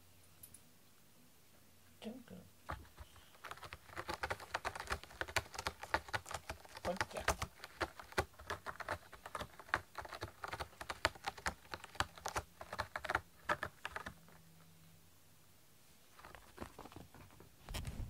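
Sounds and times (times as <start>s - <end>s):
cat scratching cardboard: 2.7s - 14.4s.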